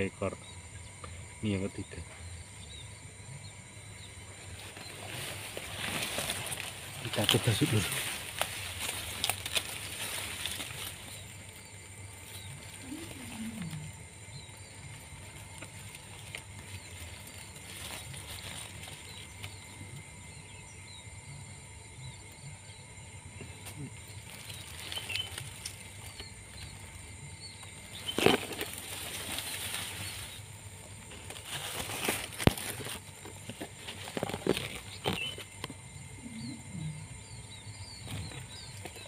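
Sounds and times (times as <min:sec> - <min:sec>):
wings flapping and rustling: 0:04.4 - 0:20.1, 0:23.6 - 0:35.6.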